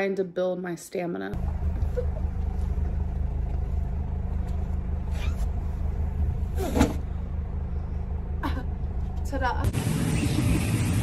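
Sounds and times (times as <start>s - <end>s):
car engine idling: 1.4s - 9.9s.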